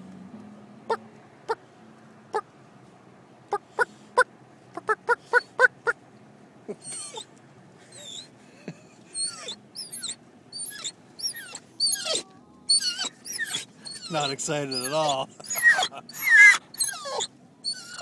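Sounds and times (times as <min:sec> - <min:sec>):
dog whining: 0:06.7 - 0:07.3, 0:07.9 - 0:08.3, 0:09.1 - 0:18.0.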